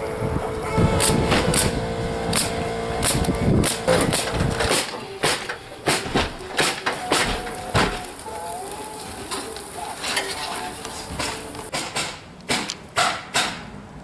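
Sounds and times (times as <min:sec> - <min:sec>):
pneumatic nailer shots: 0:01.0 - 0:08.1, 0:11.2 - 0:13.7.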